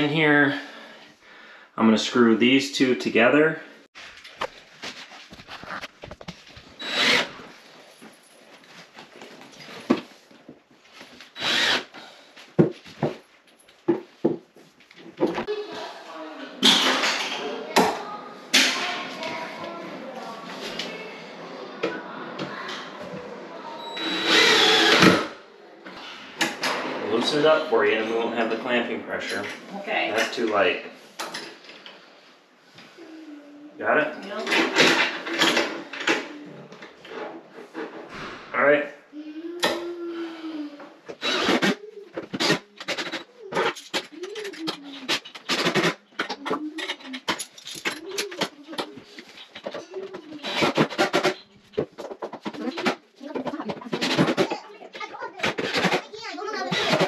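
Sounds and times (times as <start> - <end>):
cordless drill driving a screw: 6.8 - 7.3, 11.4 - 12.0, 24.0 - 25.3, 41.2 - 41.7.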